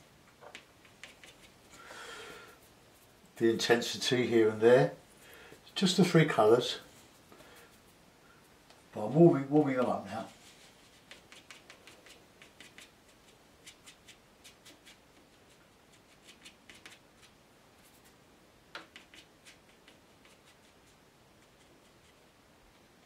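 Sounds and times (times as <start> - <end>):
brush tapping on paper: 9.0 - 10.0, 18.7 - 20.4.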